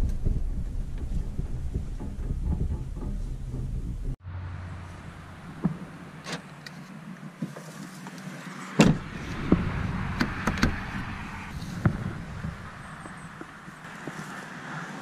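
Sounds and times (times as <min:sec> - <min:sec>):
truck door slamming: 0:08.8 - 0:09.6.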